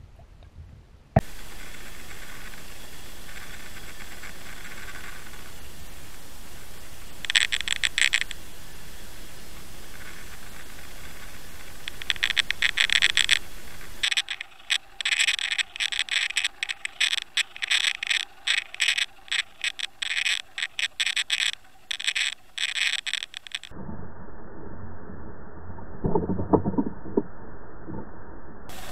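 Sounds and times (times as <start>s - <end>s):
rapid irregular clicking and rattling: 7.2s - 8.4s, 9.9s - 23.7s.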